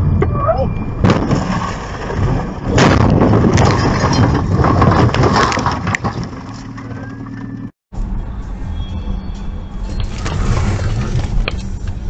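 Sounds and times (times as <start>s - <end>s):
truck crash impact: 1.0s - 7.2s
crunching and scraping: 1.0s - 7.6s.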